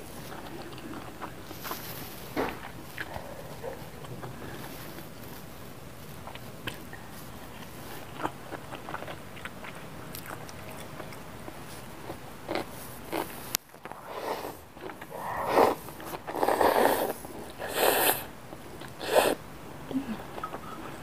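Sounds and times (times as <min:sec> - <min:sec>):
wet chewing: 0:00.1 - 0:19.4
loud slurping of noodles: 0:14.0 - 0:18.3, 0:19.0 - 0:19.4.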